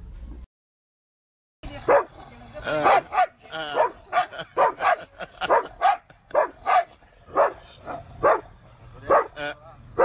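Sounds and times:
dog barking and yowling: 2.7 - 8.5, 9.1 - 9.4.

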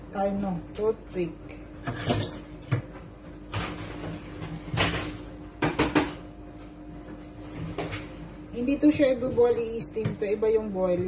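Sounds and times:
steady low hum: 0.0 - 11.0
kitchen knocks and clicks: 4.7 - 6.3.

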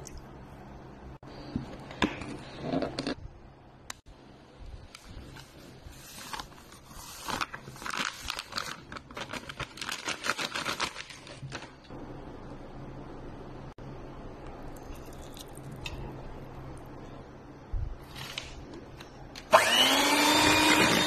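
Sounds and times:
packet crinkling and rustling: 5.2 - 11.9.

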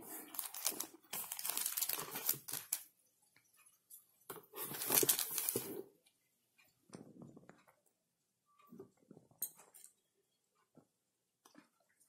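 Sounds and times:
plastic wrapping crinkling: 0.1 - 2.9, 4.5 - 5.8.

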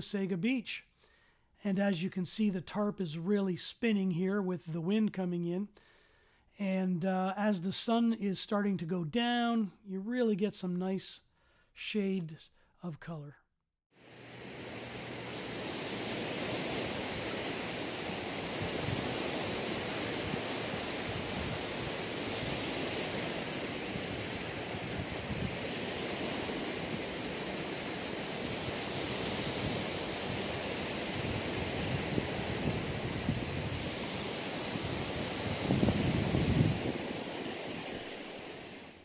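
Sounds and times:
wind: 13.9 - 39.0
waves washing onto beach: 14.0 - 39.0.

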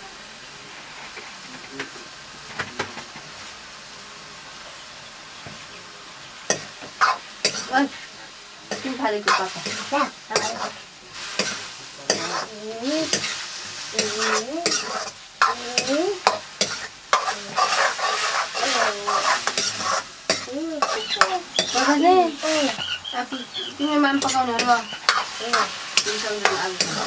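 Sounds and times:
mushrooms sizzling in oil: 0.0 - 27.0
metal ladle scraping wok: 8.7 - 27.0.

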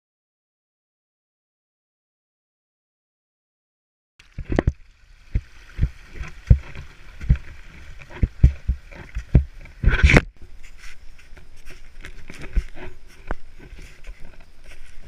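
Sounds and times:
camera thumps and rubbing: 5.4 - 15.0
loud scrape: 6.2 - 15.0.

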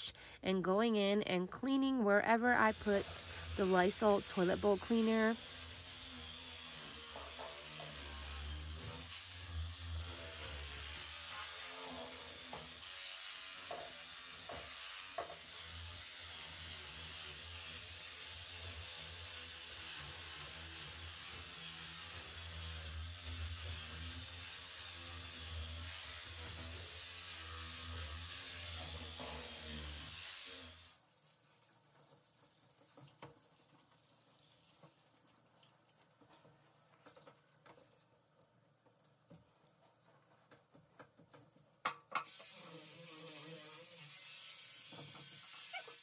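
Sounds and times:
electric scrub brush humming: 1.6 - 31.0, 42.2 - 46.0
water spraying from shower head: 42.2 - 46.0.

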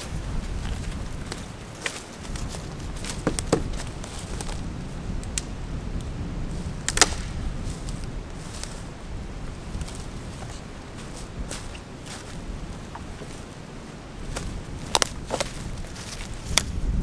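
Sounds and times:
footsteps on dry leaves: 0.0 - 4.8, 6.5 - 17.0
wind on microphone: 0.0 - 17.0
sapling snapping: 1.3 - 4.6, 6.8 - 7.4, 14.4 - 15.6, 16.2 - 16.8.

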